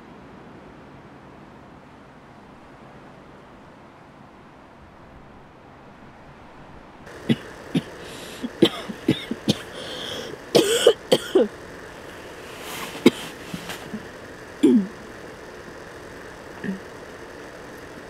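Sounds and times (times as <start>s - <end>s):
woman coughing: 7.1s - 11.6s, 12.7s - 15.0s, 16.6s - 16.9s.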